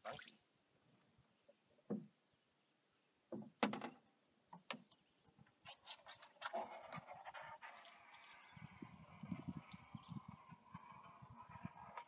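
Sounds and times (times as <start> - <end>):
knocks and clicks in canoe: 3.3 - 5.6.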